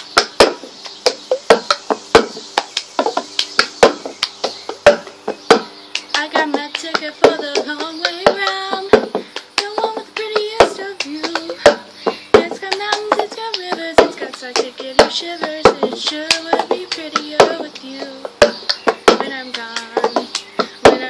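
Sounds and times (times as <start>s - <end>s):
hand claps: 5.5s - 8.6s, 19.5s - 20.5s
girl singing: 6.0s - 21.0s.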